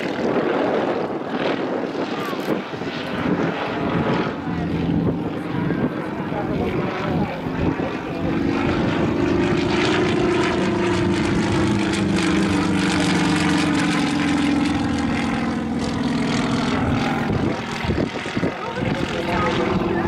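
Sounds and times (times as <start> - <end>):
propeller plane engine drone: 0.0 - 20.0.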